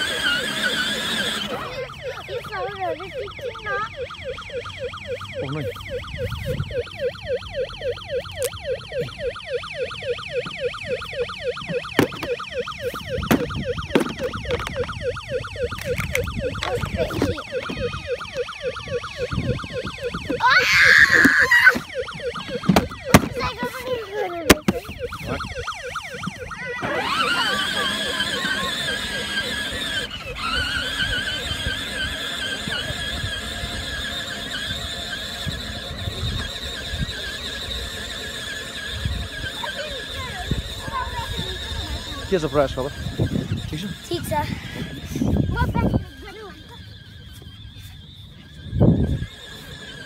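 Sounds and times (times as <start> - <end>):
electronic toy siren warble: 0.0 - 50.0
child squealing: 20.4 - 21.8.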